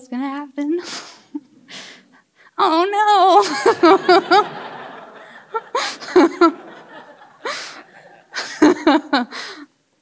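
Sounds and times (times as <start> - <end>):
woman breathing: 1.7 - 2.6, 5.2 - 6.1, 7.4 - 8.6, 9.3 - 9.7
woman laughing: 3.3 - 9.6.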